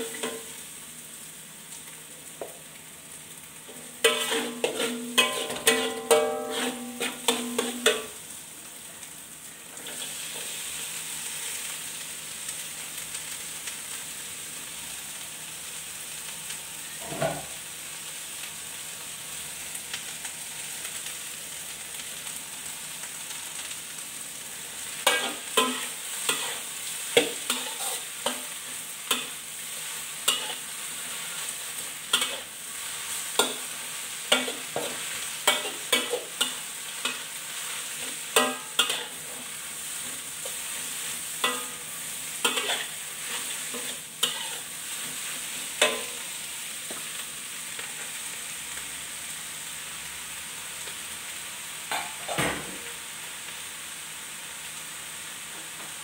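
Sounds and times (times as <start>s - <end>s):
food sizzling in a wok: 0.0s - 56.0s
metal spatula scraping a wok: 3.7s - 8.2s, 24.8s - 47.2s.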